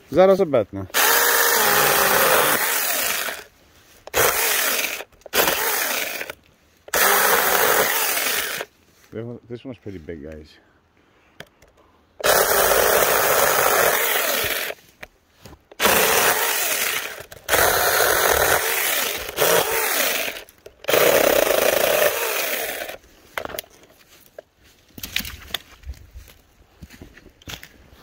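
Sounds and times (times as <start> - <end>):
mini chainsaw cutting branch: 0.9 - 8.7, 12.2 - 14.8, 15.7 - 23.6.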